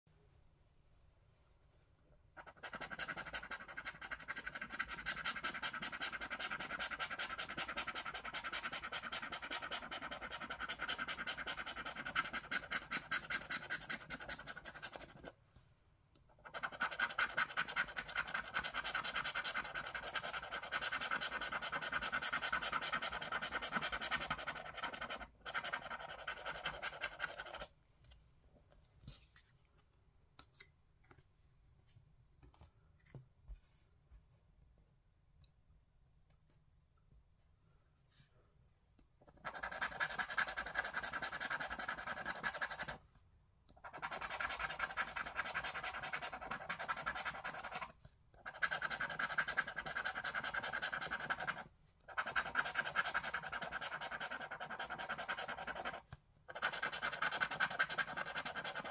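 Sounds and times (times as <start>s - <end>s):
scraping scratch card: 2.4s - 15.3s, 16.4s - 27.7s, 39.3s - 43.0s, 43.8s - 58.9s.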